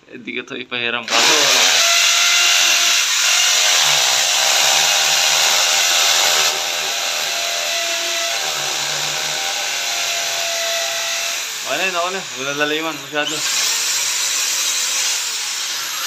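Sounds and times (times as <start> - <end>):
electric drill boring into wall: 1.1 - 16.0.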